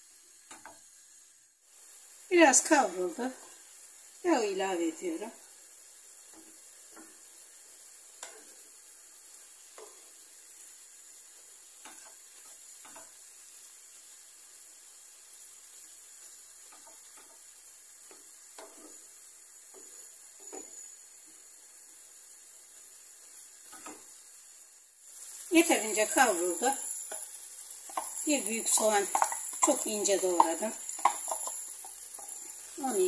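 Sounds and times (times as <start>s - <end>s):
meat sizzling in a pan: 0.0s - 33.0s
wooden spoon scraping a pan: 16.6s - 21.5s, 23.3s - 24.2s, 25.1s - 33.0s.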